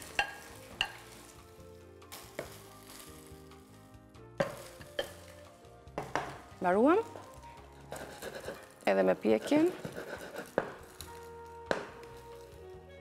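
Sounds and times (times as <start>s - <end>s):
spatula tapping pan: 0.0s - 1.1s, 6.0s - 6.4s
egg sizzling in frying pan: 0.0s - 12.6s
spatula scraping pan: 7.0s - 11.0s.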